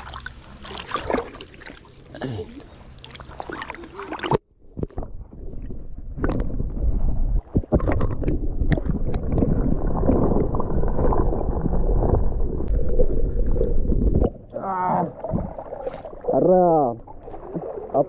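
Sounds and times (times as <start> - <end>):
underwater churning rumble: 5.0 - 18.0.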